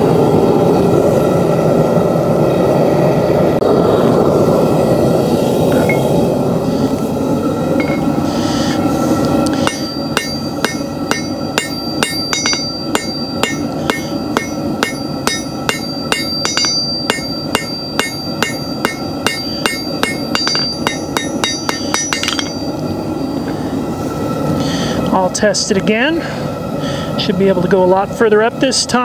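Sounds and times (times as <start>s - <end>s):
forge roaring: 0.0s - 28.2s
hammer striking steel on anvil: 7.8s - 8.1s, 9.5s - 22.8s.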